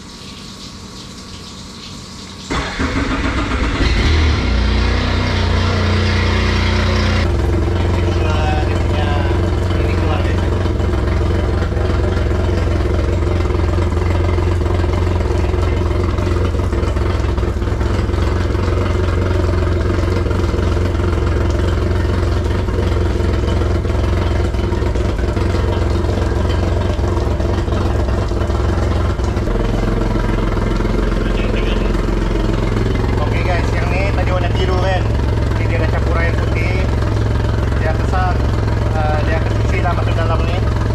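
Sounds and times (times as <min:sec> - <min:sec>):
outboard motor idling: 0:02.5 - 0:40.9.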